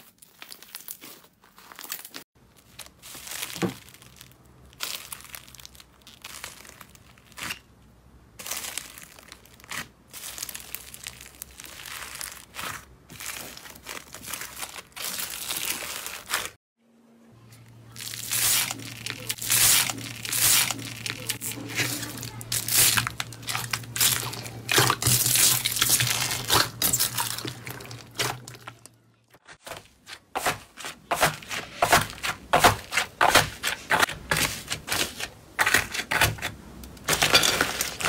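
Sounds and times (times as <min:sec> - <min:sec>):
slime crackling squishes: 0:00.0 - 0:16.6, 0:17.5 - 0:29.7.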